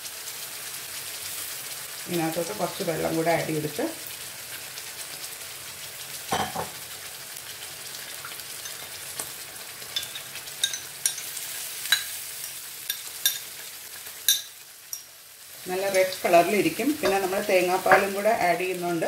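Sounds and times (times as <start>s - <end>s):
food sizzling in a frying pan: 0.0s - 19.0s
spoon clinking against bowl: 10.0s - 12.1s, 12.9s - 13.5s, 14.3s - 15.1s.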